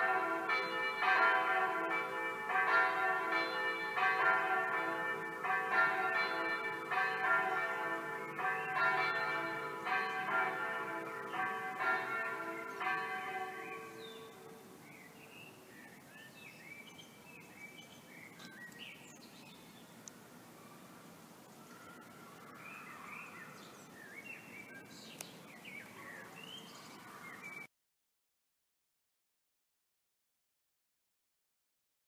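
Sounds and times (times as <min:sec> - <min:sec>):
electronic church bells ringing: 0:00.0 - 0:14.7
birds chirping: 0:00.0 - 0:27.7.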